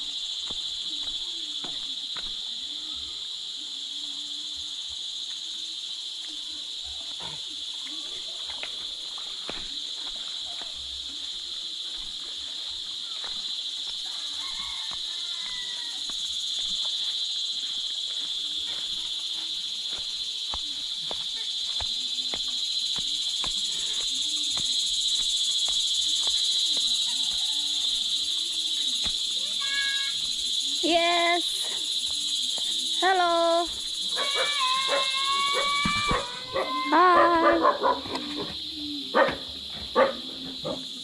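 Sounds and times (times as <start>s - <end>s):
insects trilling: 0.0s - 41.0s
footsteps through grass: 7.9s - 30.3s.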